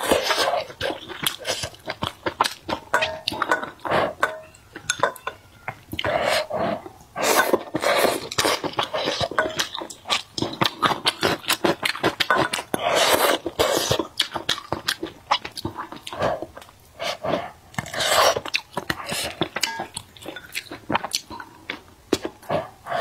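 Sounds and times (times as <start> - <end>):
chewing and wet mouth sounds: 0.0 - 5.0, 5.6 - 23.0.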